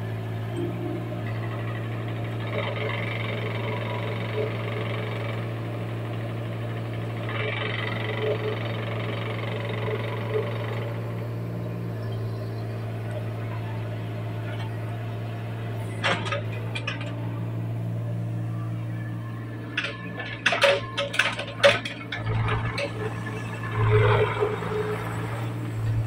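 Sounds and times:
diesel engine running: 0.0s - 26.0s
excavator arm clanks and rattles: 0.5s - 26.0s.

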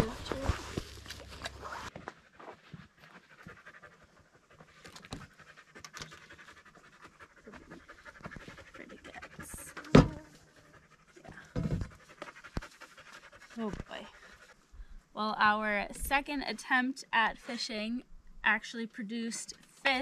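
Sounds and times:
dog panting: 1.9s - 14.7s.

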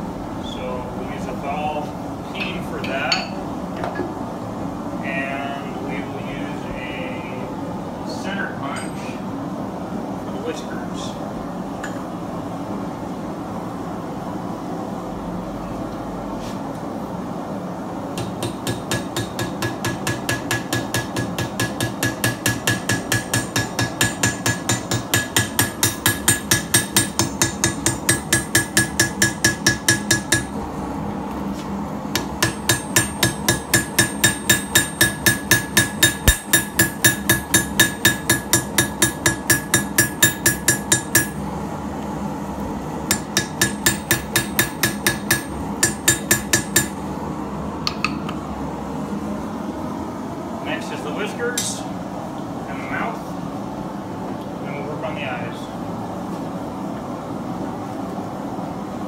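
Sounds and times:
hammer striking punch on anvil: 18.2s - 30.6s, 32.2s - 41.4s, 43.1s - 47.0s, 47.9s - 48.3s.

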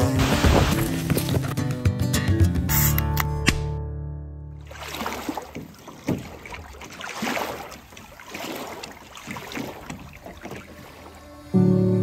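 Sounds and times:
small waves lapping against canoe: 4.6s - 11.5s.

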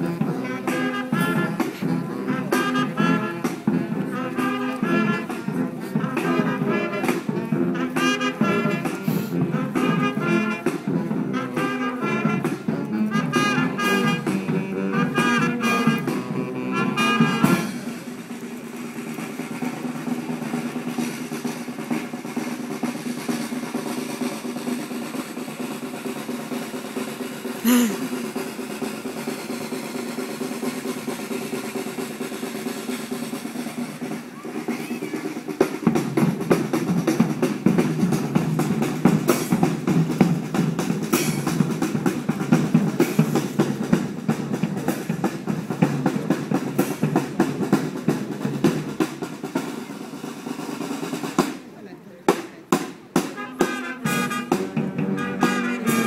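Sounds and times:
sustained brass notes: 0.0s - 18.0s, 53.3s - 56.0s
marching band playing: 0.0s - 56.0s
snare and bass drums: 0.0s - 56.0s.

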